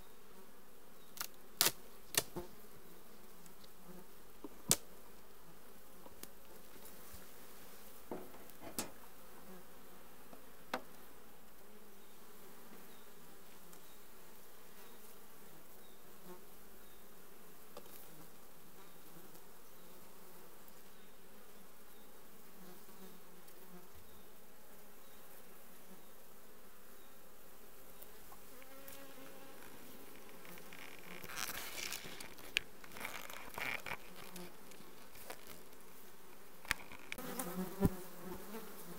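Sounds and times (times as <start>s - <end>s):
bees buzzing: 25.7s - 38.9s
rustling: 28.0s - 38.0s.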